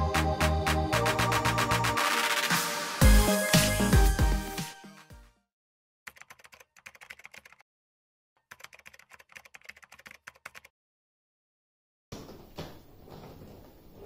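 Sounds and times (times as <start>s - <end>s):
electronic music: 0.0s - 5.2s
keyboard typing clicks: 6.1s - 7.6s, 8.4s - 10.7s.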